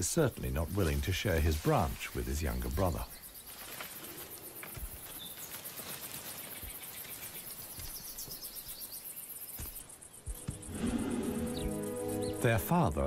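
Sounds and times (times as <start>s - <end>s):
fast insect trill: 0.0s - 13.0s
faint bird chirps: 2.6s - 12.7s.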